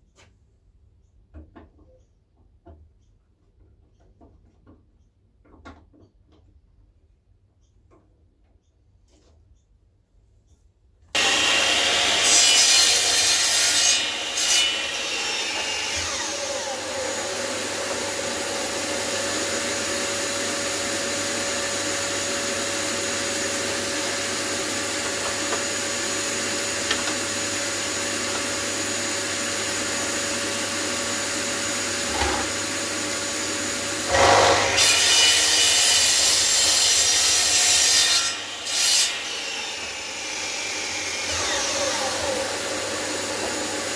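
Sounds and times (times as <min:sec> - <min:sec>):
mitre saw cutting wood: 0:11.2 - 0:43.9.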